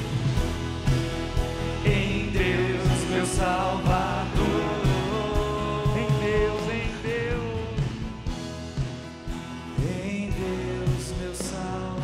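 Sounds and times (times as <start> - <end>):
drum beat: 0.0 - 11.8
band playing worship song: 0.0 - 12.0
person singing long held notes: 1.9 - 7.4.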